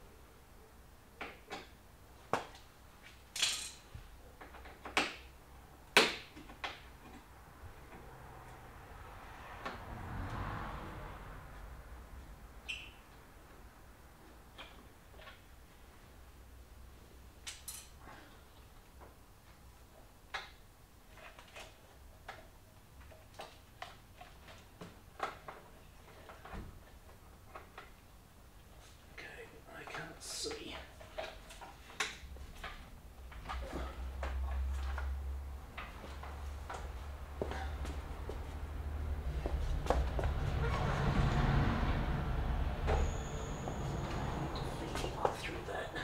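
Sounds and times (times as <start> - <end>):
metal tools clinking: 3.4 - 3.8, 17.5 - 18.0.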